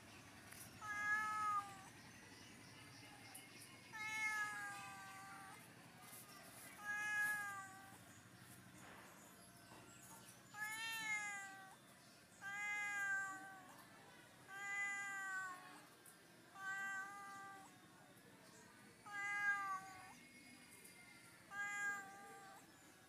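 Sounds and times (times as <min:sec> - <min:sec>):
cat meowing: 0:00.8 - 0:01.9, 0:03.9 - 0:05.6, 0:06.8 - 0:08.0, 0:10.6 - 0:11.8, 0:12.4 - 0:13.7, 0:14.5 - 0:15.6, 0:16.5 - 0:17.7, 0:19.0 - 0:20.2, 0:21.5 - 0:22.6.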